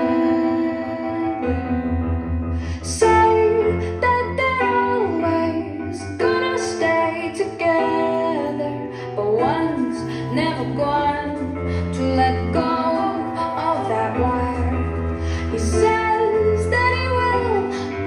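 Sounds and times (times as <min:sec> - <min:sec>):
song with woman singing: 0:00.0 - 0:18.0.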